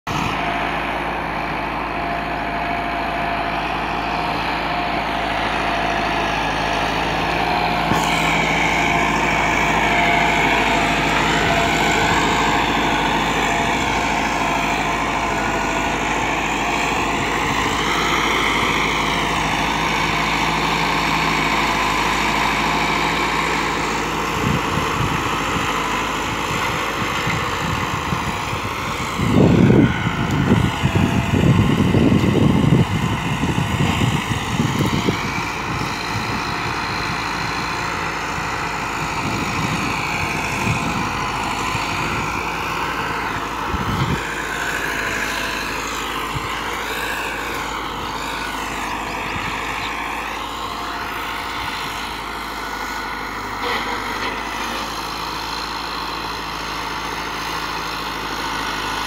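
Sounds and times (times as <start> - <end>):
tractor diesel engine under load: 0.0 - 59.0
rotavator pulled through soil: 0.1 - 59.0.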